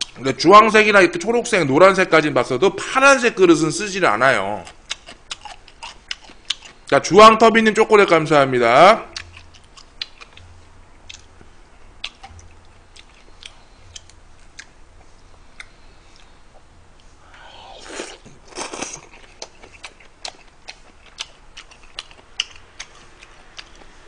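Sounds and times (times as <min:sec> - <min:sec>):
chewing with mouth clicks: 0:04.6 - 0:06.9, 0:09.1 - 0:17.1, 0:17.8 - 0:24.0.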